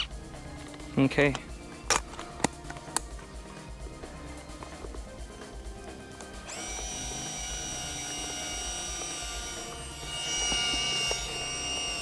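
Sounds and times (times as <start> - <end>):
camera film-advance motor whining: 6.4 - 12.0.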